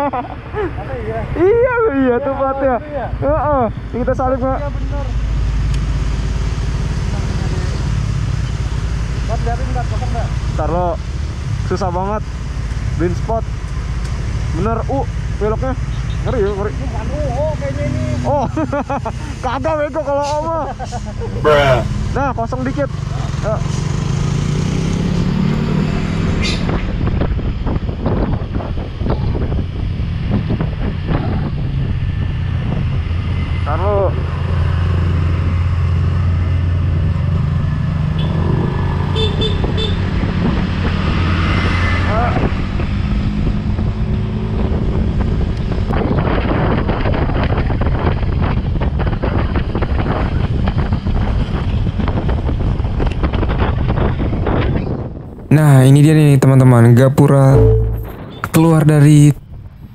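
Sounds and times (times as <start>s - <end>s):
road noise: 0.0s - 59.9s
wind buffeting microphone: 26.1s - 33.4s, 39.6s - 55.5s.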